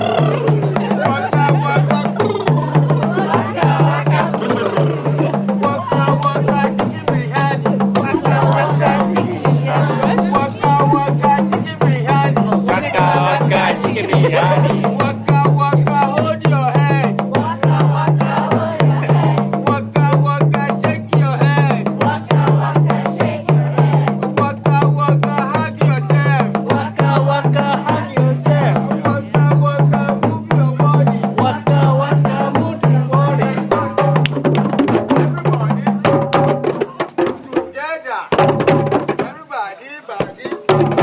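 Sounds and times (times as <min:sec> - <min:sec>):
wavering melody: 0:00.0 - 0:05.6
repeating drum beat: 0:00.0 - 0:39.4, 0:40.2 - 0:41.0.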